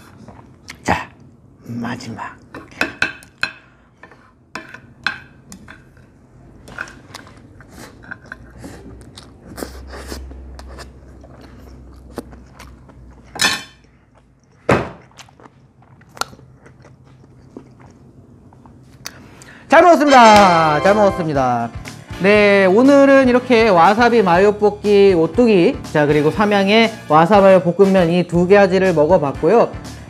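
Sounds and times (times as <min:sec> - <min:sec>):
chewing: 0:06.8 - 0:19.4.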